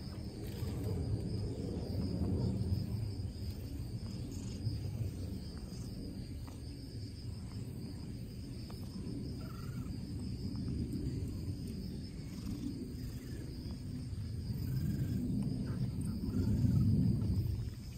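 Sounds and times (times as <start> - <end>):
high trill of insects: 0.0 - 17.9
cat purring: 12.2 - 13.4.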